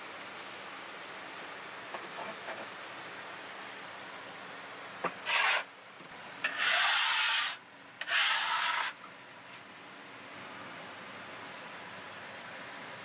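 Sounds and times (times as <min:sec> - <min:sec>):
knife scraping a cutting board: 0:05.2 - 0:05.6, 0:06.4 - 0:09.0.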